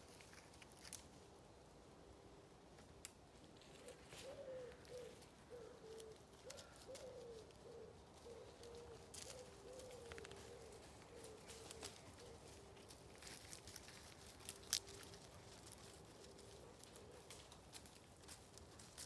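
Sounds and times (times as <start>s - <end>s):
pigeon cooing: 3.6s - 13.4s, 14.4s - 17.6s
dogs rustling through undergrowth: 8.2s - 19.0s.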